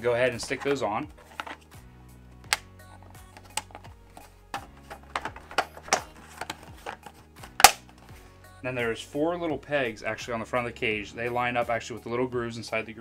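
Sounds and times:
quiet background music: 0.0s - 13.0s
plastic parts clicking and snapping: 1.2s - 1.6s, 3.3s - 8.0s.

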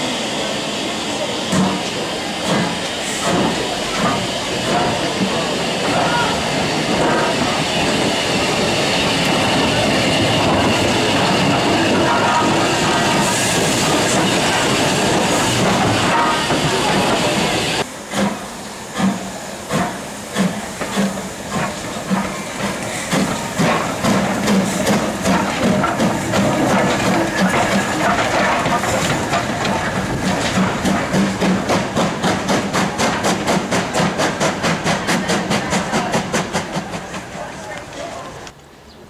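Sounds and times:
steam hissing: 0.0s - 38.0s
steam locomotive exhaust beats: 0.0s - 38.5s.

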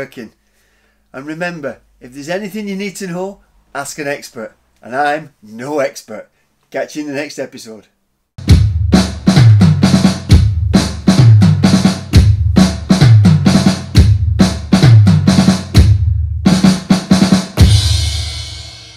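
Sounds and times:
outro music with drum beat: 8.4s - 18.9s.

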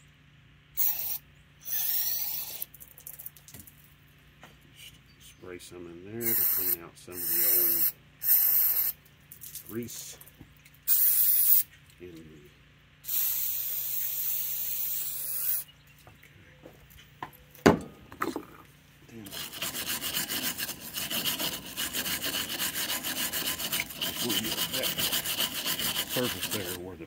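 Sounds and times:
aerosol spray hissing: 6.2s - 8.9s, 13.1s - 15.6s
wire brush scrubbing metal: 6.2s - 8.9s, 19.1s - 27.0s.

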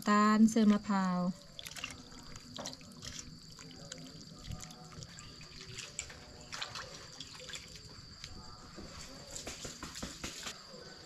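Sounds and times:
water sloshing in a steel bowl: 0.9s - 8.0s
small splashes: 1.3s - 7.9s.

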